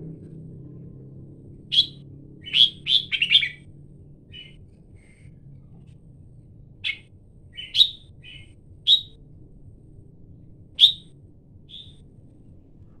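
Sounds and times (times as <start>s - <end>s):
bird calling sharp notes: 1.7s - 3.6s, 6.8s - 9.2s, 10.8s - 11.1s, 11.7s - 12.0s
soft bird chirps: 1.7s - 3.6s, 4.3s - 6.0s, 6.8s - 9.2s, 10.8s - 11.1s, 11.7s - 12.1s.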